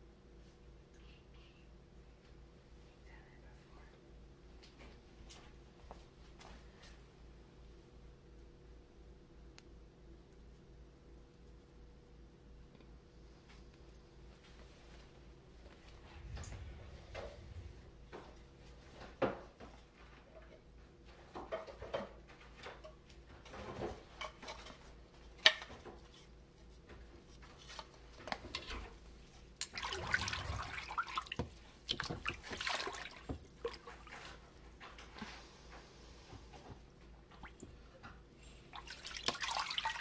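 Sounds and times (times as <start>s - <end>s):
water sloshing and dripping in vat: 27.3s - 35.4s, 36.5s - 40.0s
continuous splashing: 29.6s - 35.2s, 38.7s - 40.0s.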